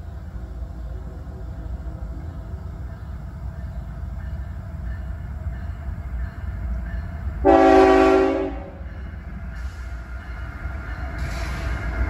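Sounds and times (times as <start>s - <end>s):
locomotive air horn blast: 7.4s - 8.8s.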